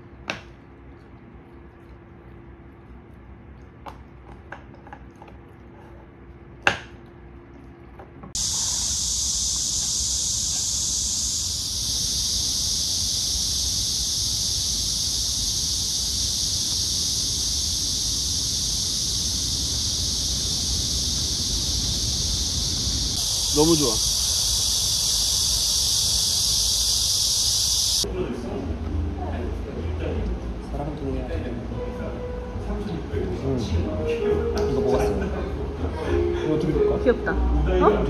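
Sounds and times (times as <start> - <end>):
high-pitched insect chorus: 8.4 - 28.1.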